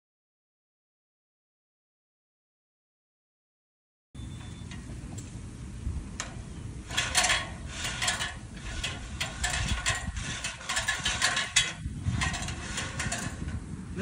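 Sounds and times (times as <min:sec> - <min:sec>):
ladder sections sliding: 0:06.1 - 0:13.6
ladder rung locks clattering: 0:06.2 - 0:13.6.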